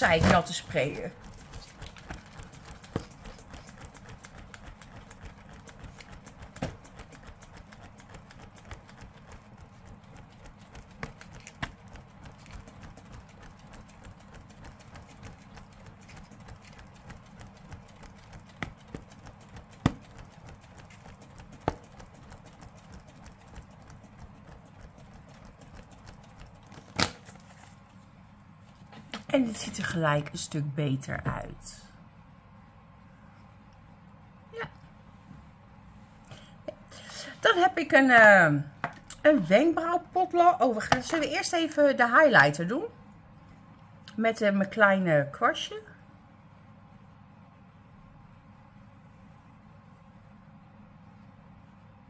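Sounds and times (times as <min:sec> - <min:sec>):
hand fan flapping: 0:00.0 - 0:28.0.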